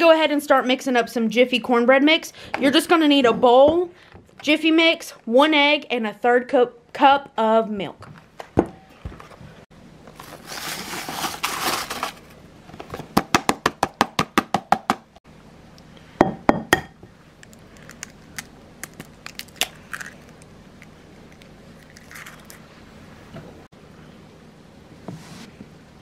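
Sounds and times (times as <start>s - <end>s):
dry mix pouring rustle: 10.2s - 12.3s
egg being cracked: 17.4s - 20.5s.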